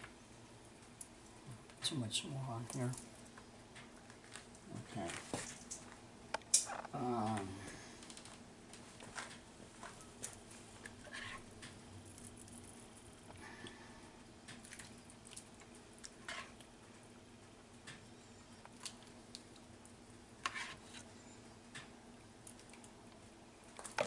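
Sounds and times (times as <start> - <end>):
faint low hum: 0.0 - 24.0.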